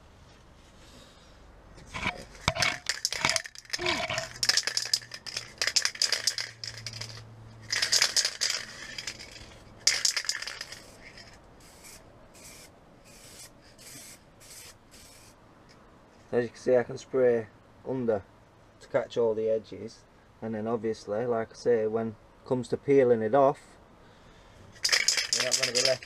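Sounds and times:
spray can ball rattling: 1.9s - 15.4s, 24.8s - 26.0s.

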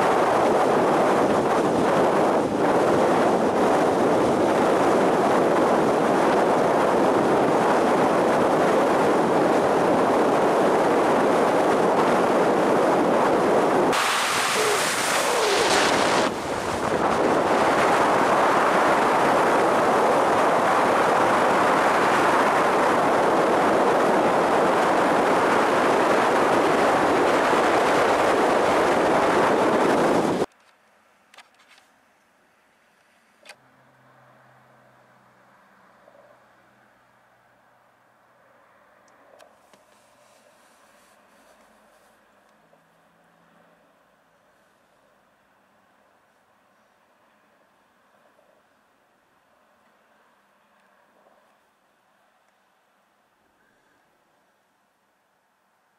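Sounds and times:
wind blowing across microphone: 0.0s - 30.6s.

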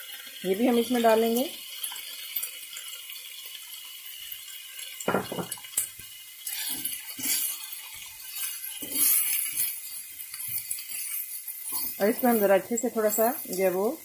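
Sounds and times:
spatula scraping frying pan: 6.4s - 13.8s.

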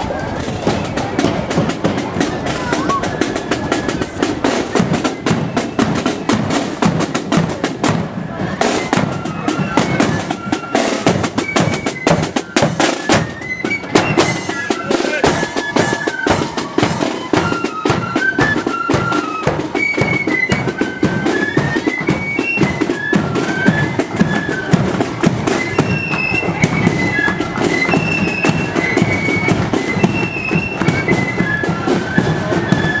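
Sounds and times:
rapid drumbeats: 0.0s - 33.0s
shrill flute melody: 0.0s - 33.0s.

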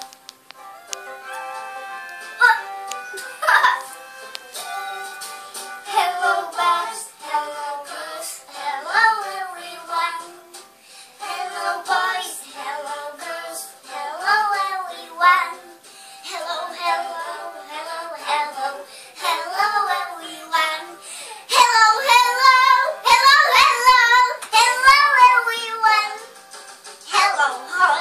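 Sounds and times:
girl singing: 2.4s - 2.7s, 5.8s - 10.6s, 11.2s - 26.3s, 27.1s - 28.0s.

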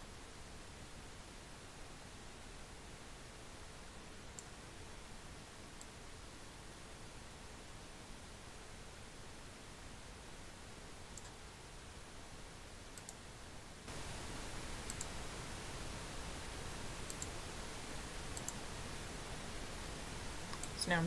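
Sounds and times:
faint hiss: 0.0s - 21.0s
computer mouse clicking: 11.1s - 11.4s, 13.0s - 13.2s, 14.8s - 15.1s, 17.1s - 17.4s, 18.3s - 18.6s, 20.5s - 20.8s.

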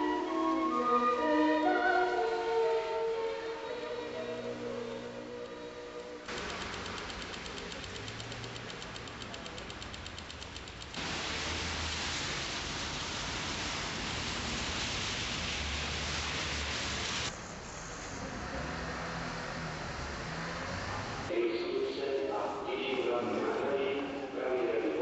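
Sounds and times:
street traffic noise: 3.2s - 21.5s
fast even ticking: 6.3s - 11.0s.

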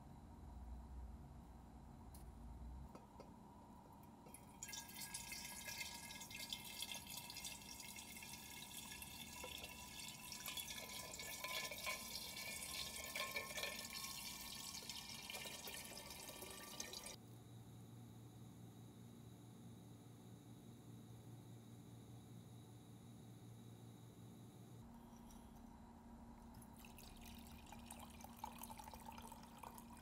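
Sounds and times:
water pouring into glass jar: 4.3s - 17.2s, 26.4s - 30.0s.

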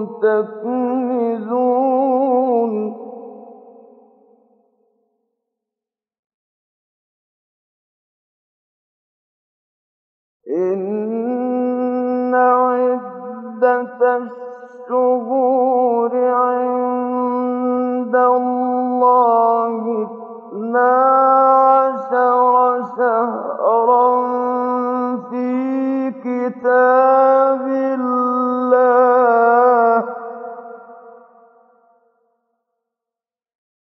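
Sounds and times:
man chanting melodically: 0.0s - 3.2s, 10.5s - 31.1s.

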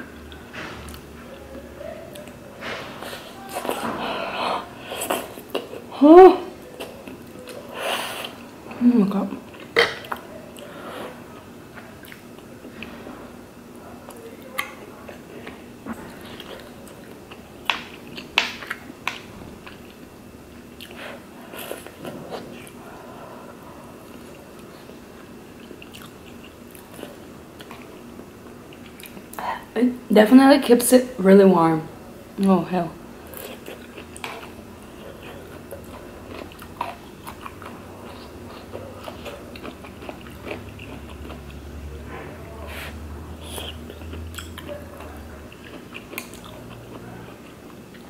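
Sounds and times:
person chewing: 2.1s - 5.9s, 9.3s - 13.0s, 14.1s - 20.0s, 20.7s - 29.4s, 33.3s - 48.0s
chewing mouth sounds: 33.3s - 41.6s, 42.7s - 48.0s.

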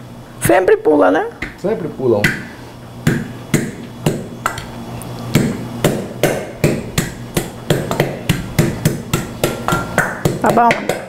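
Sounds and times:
pestle pounding in metal pot: 2.3s - 4.7s, 5.3s - 11.0s.

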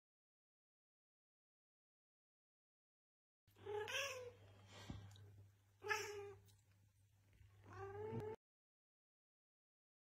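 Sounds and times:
cat meowing: 3.6s - 4.4s, 5.8s - 6.4s, 7.6s - 8.4s.

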